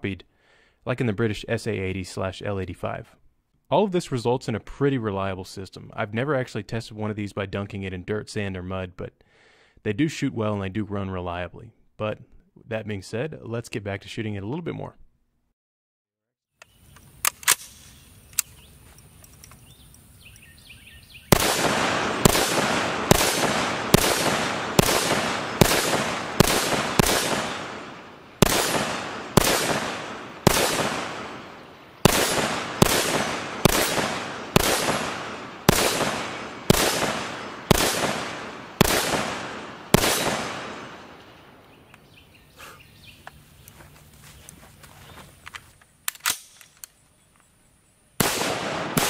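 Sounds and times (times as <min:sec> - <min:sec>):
rifle gunshots: 0:21.3 - 0:41.6, 0:48.2 - 0:49.0.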